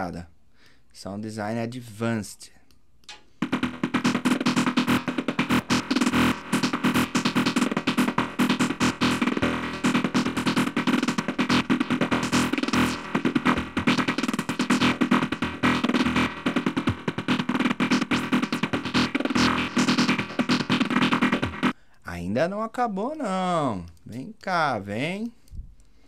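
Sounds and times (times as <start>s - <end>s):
synth stuttering notes: 3.4s - 21.7s.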